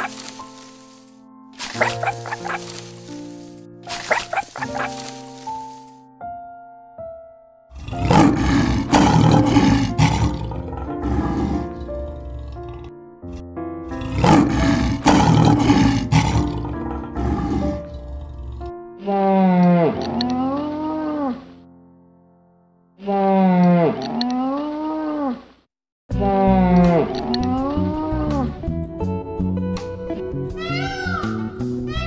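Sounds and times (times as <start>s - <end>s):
background music: 0.0s - 24.3s, 26.1s - 32.0s
wavering animal call: 1.8s - 2.8s, 3.9s - 5.1s
lion roaring: 7.7s - 21.4s.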